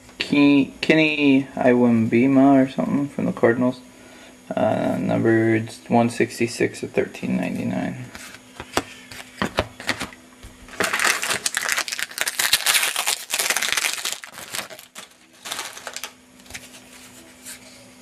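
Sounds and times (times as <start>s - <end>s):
cards clicking and tapping: 8.6s - 10.1s
packaging crinkling and rustling: 8.6s - 17.2s.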